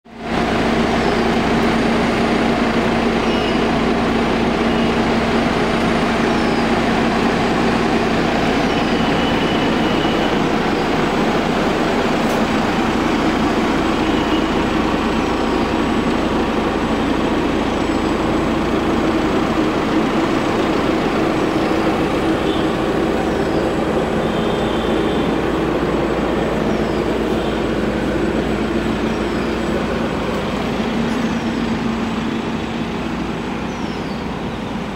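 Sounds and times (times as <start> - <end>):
diesel van engine idling: 0.1 - 34.9.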